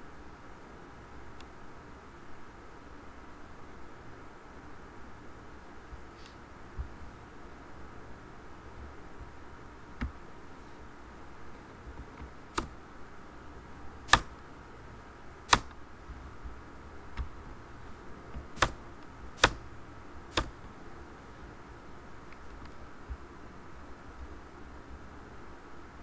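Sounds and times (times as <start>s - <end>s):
faint background hiss: 0.0s - 26.0s
mouse and keyboard clicks: 12.0s - 12.7s, 15.5s - 15.8s, 19.4s - 19.6s.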